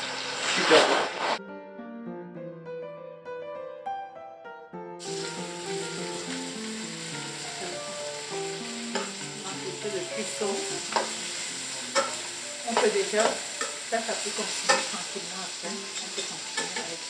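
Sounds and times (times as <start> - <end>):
chicken sizzling in a pan: 0.0 - 1.4, 5.0 - 17.0
background music: 1.4 - 17.0
metal tongs clicking on pan: 8.9 - 9.3, 10.9 - 11.2, 11.9 - 17.0.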